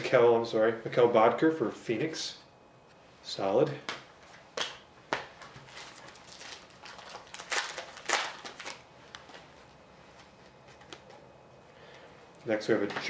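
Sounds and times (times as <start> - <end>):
foil wrapper tearing and crinkling: 5.7 - 8.9.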